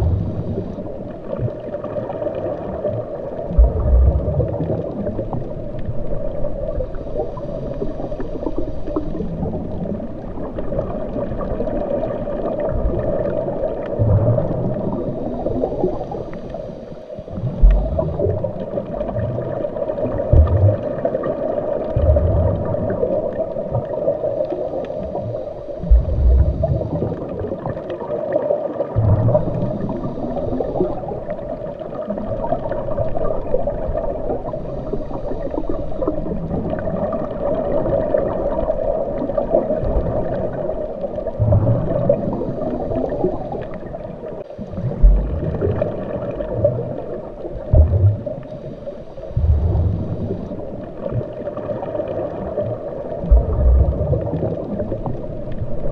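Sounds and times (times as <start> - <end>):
muffled underwater rush: 0.0 - 55.9
low bumps: 17.6 - 18.2, 25.9 - 26.6, 44.9 - 45.6, 47.7 - 48.2, 49.4 - 50.3, 53.3 - 54.1.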